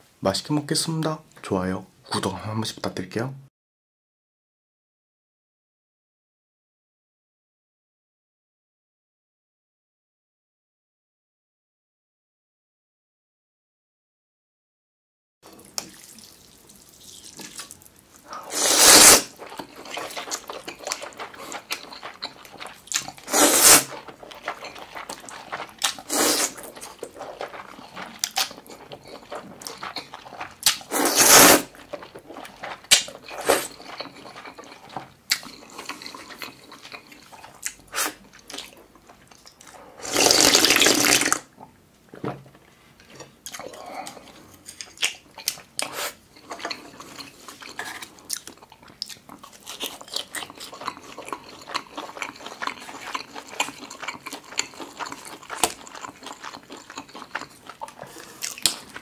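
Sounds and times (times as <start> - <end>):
wet chewing: 15.5 - 41.4, 43.0 - 59.0
slurping noodles: 15.6 - 38.7, 39.6 - 41.4, 45.8 - 48.8, 49.5 - 59.0.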